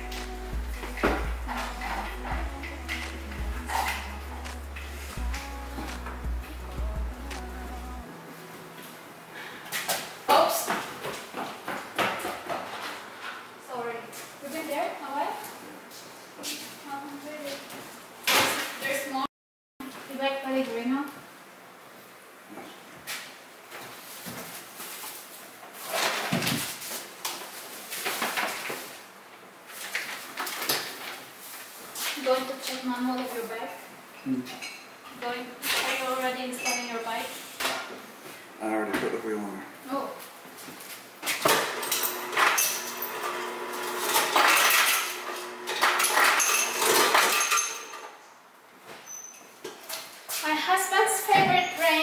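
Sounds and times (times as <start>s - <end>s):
items clinking and knocking: 41.5s - 48.2s.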